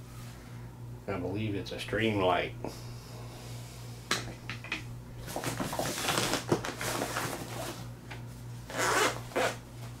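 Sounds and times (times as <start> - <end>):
steady low hum: 0.0 - 10.0
nylon backpack rustling: 8.7 - 9.6.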